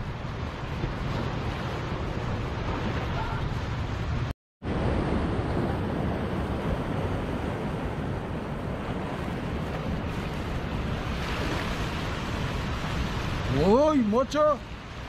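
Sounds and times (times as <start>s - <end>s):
wind rumbling on microphone: 0.0s - 15.0s
surf breaking over rocks: 4.7s - 15.0s.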